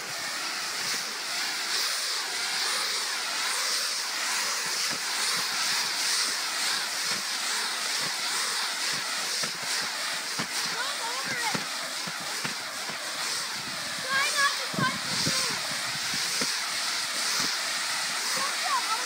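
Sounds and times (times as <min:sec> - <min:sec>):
sprinkler spraying water hiss: 0:00.0 - 0:19.0.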